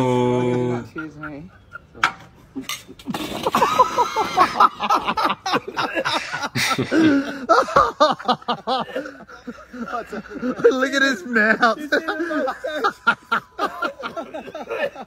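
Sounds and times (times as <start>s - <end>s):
people laughing: 0.1s - 15.0s.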